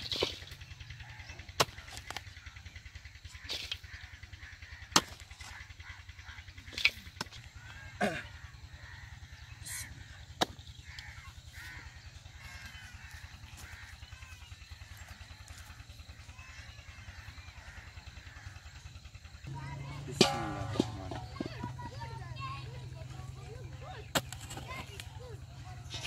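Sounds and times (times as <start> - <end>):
birds chirping: 0.0 - 26.0
digging tool striking earth: 1.5 - 2.3, 4.9 - 5.6, 23.9 - 25.2.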